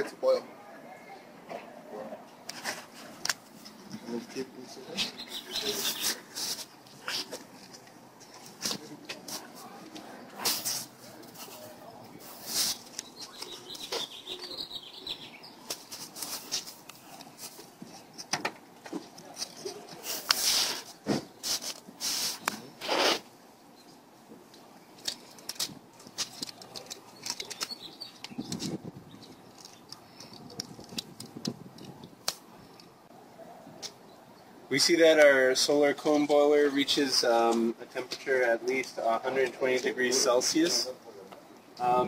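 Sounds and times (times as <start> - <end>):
plastic film crinkling: 25.0 - 32.4.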